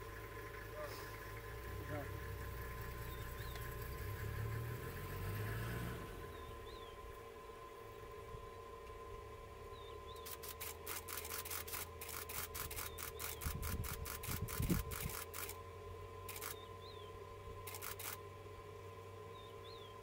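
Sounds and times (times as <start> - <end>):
faint steady hum: 0.0 - 20.0
camera shutters clicking: 10.2 - 15.6, 16.3 - 16.6, 17.7 - 18.2.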